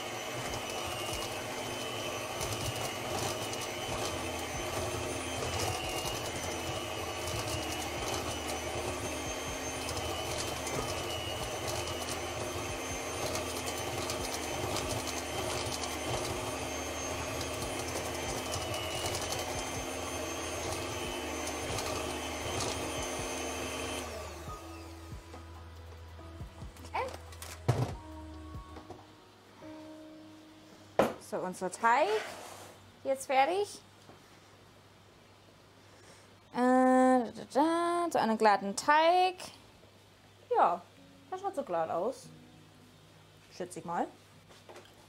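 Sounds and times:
electric hand mixer running: 0.0s - 25.3s.

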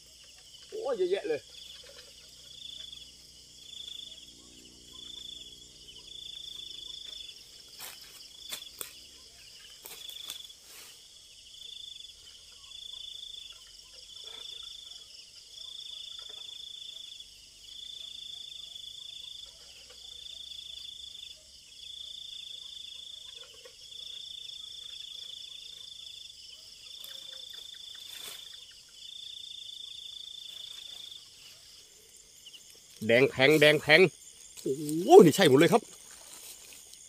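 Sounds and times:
night insects trilling: 0.0s - 37.0s
bamboo pole shaking leafy branches: 34.6s - 36.9s.

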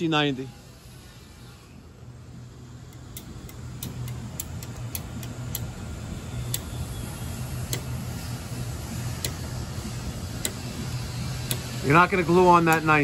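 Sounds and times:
low machine hum: 0.0s - 13.0s
ratcheting pipe cutter clicking: 2.9s - 5.8s, 6.4s - 6.8s, 7.6s - 8.0s, 9.2s - 9.6s, 10.3s - 13.0s.

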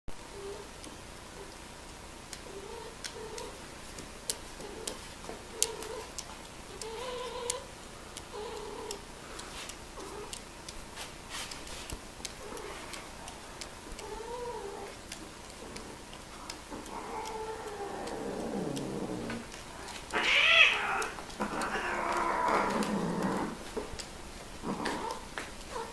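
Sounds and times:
sharp clicks: 2.3s - 25.2s
cat yowling: 16.8s - 23.6s.

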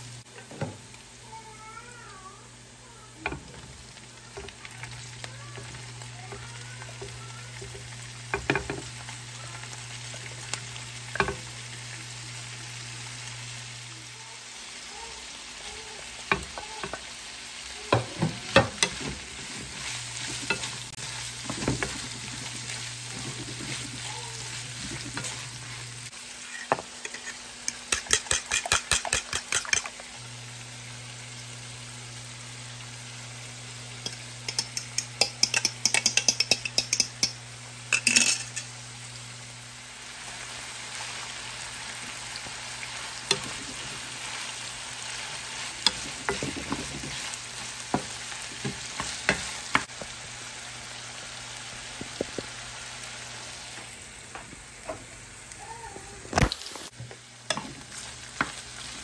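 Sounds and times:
sausage and onion sizzling: 0.0s - 59.0s
wooden spatula scraping a pan: 18.0s - 27.4s, 43.3s - 49.8s.

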